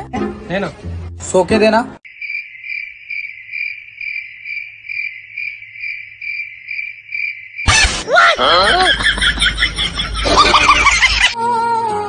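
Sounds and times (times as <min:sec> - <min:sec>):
crickets chirping: 0:02.0 - 0:07.8.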